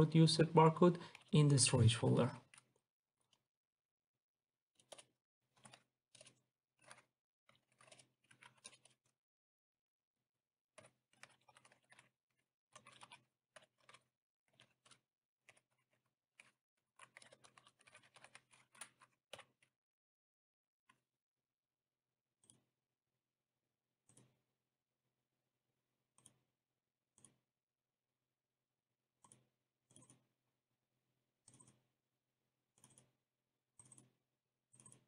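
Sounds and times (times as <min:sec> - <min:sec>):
computer keyboard typing: 0:12.8 - 0:19.5.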